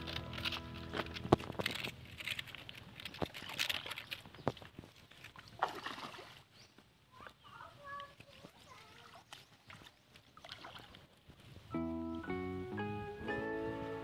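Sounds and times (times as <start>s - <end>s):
background music: 0.0s - 1.9s, 11.7s - 14.0s
wading steps in water: 0.0s - 11.6s.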